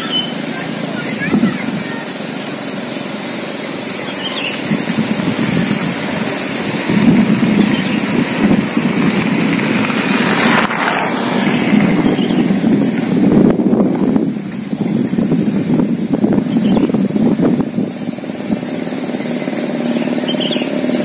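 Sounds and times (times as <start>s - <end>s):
wind buffeting microphone: 0.7s - 2.3s, 4.3s - 20.5s.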